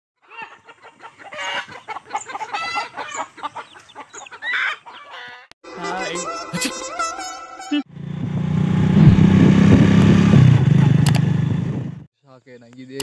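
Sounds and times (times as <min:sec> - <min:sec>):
chickens clucking: 0:00.2 - 0:05.6.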